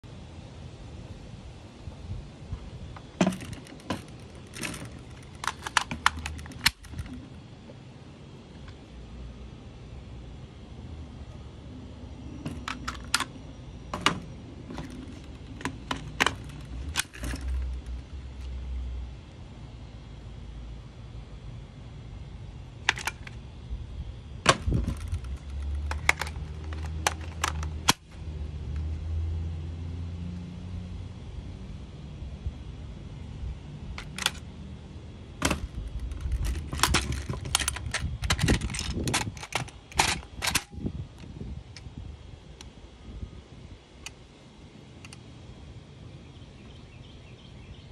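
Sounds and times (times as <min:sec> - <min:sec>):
magazine clicking into gun: 0:36.2 - 0:40.7.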